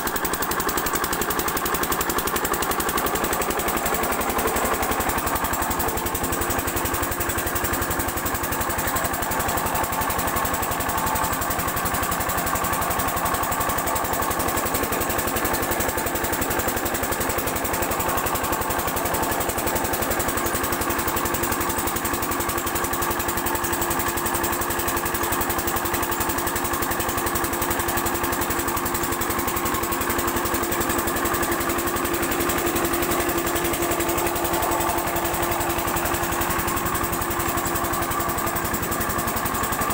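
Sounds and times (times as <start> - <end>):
diesel pump engine running: 0.0 - 39.9.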